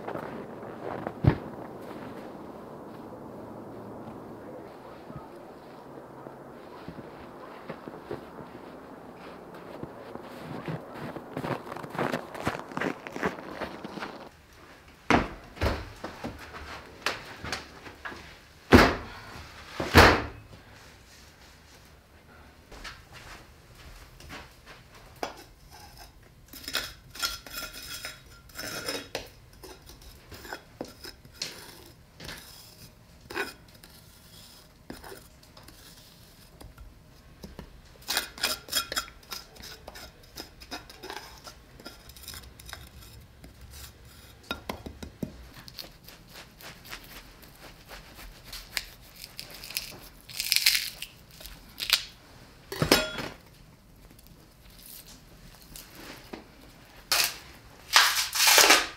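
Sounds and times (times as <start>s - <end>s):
knife scraping salt off meat: 25.7s - 36.6s.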